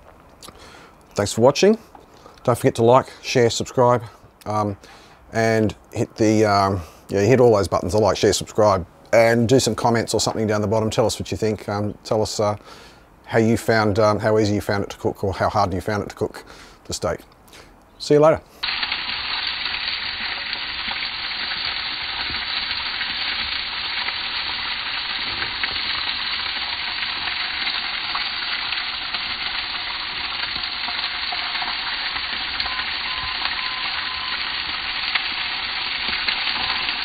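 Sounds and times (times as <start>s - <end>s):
steak sizzling in skillet: 18.6s - 37.0s.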